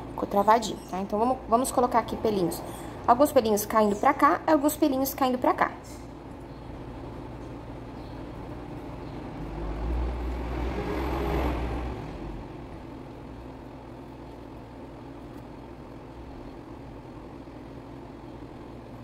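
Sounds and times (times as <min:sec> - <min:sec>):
low background hum: 0:00.0 - 0:19.0
vehicle passing by: 0:08.6 - 0:13.1.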